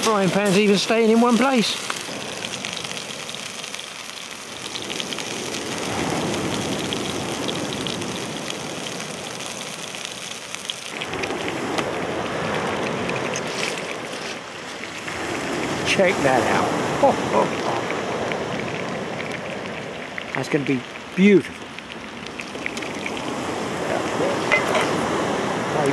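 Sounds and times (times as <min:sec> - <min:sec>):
steak sizzling in frying pan: 0:00.0 - 0:25.0.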